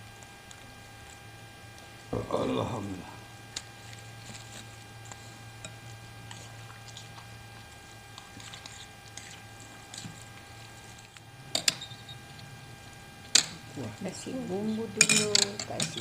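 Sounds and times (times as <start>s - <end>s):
electrical hum: 0.0s - 16.0s
spoon clinking a bowl: 15.0s - 16.0s
tableware handling: 15.0s - 16.0s.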